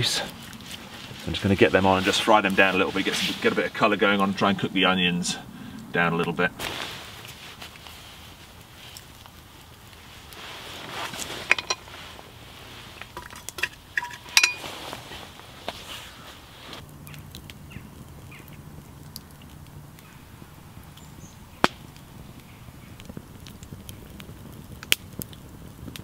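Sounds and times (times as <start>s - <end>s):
campfire crackling: 0.0s - 26.0s
fire pop: 6.6s - 26.0s
metallic clinks on pot: 13.1s - 14.7s.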